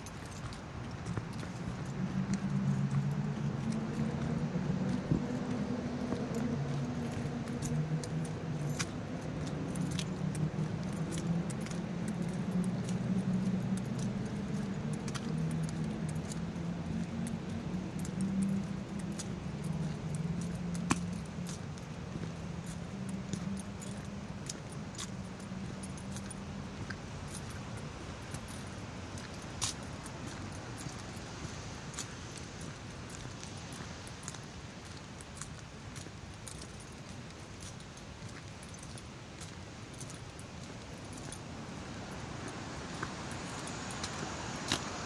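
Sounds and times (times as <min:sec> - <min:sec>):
keys jingling: 0:02.6 - 0:44.8.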